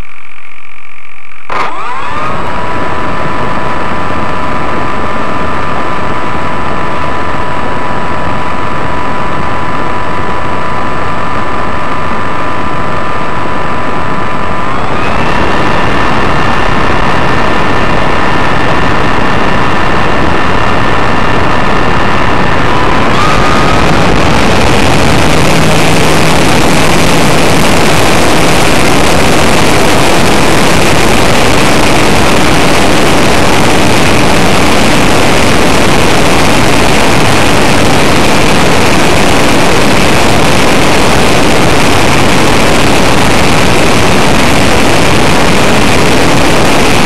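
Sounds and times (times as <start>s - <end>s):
model plane motor whining: 0.0s - 35.9s
propeller wash rushing: 1.5s - 47.0s.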